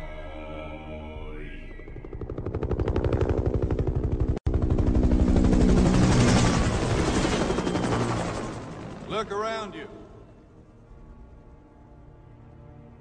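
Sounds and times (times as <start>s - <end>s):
helicopter rotor blades chopping: 1.8s - 11.3s.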